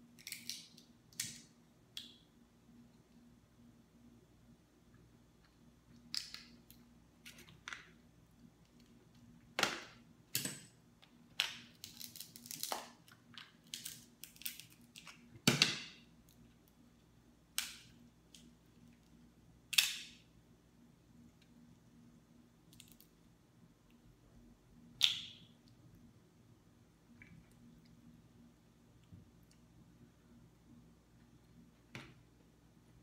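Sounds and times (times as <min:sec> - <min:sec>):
crab shell cracking: 0:11.4 - 0:15.2.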